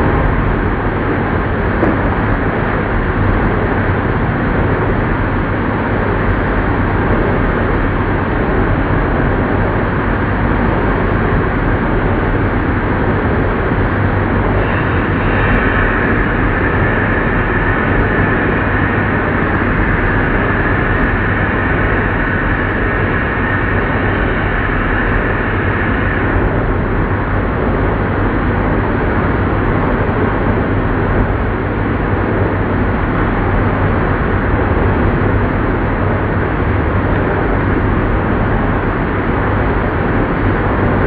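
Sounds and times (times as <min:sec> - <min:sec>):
high machine whine: 0:00.0 - 0:41.0
lathe running: 0:14.0 - 0:27.3.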